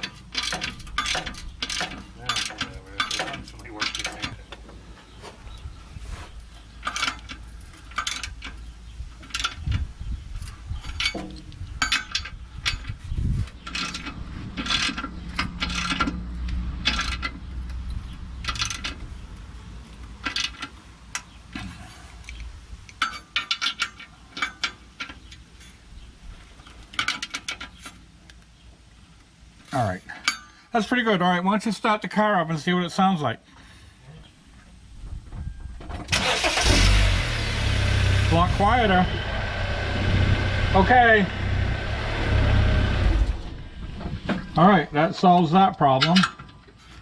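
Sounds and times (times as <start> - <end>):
tool clinking on metal bolt: 45.9 - 46.6.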